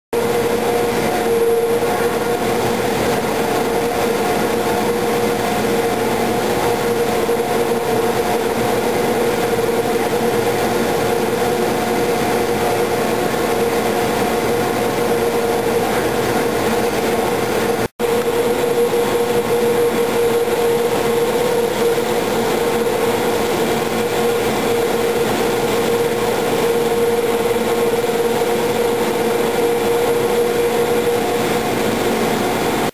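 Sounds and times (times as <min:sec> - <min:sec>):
cable car machinery humming: 0:00.2 - 0:32.9.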